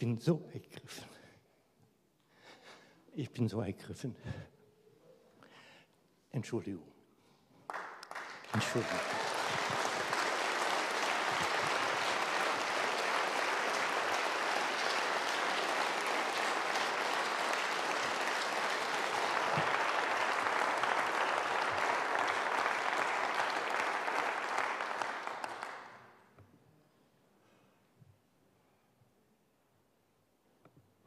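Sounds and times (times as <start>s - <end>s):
audience applauding: 7.7s - 26.2s.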